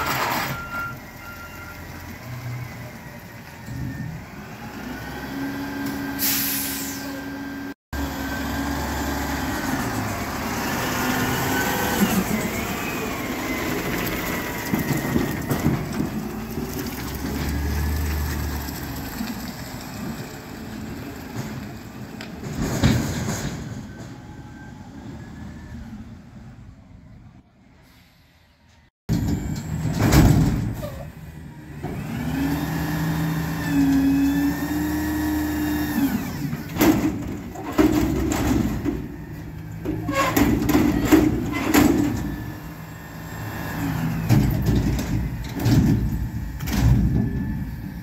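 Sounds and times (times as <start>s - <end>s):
garbage truck engine and hydraulics: 0.0s - 48.0s
air brake hiss: 6.2s - 7.2s, 27.8s - 28.6s.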